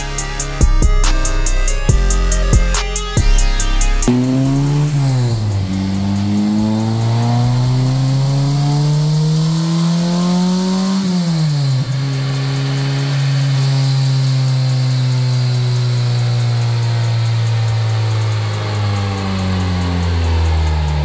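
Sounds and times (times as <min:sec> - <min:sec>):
road noise hiss: 0:00.0 - 0:21.0
truck engine revving: 0:00.0 - 0:21.0.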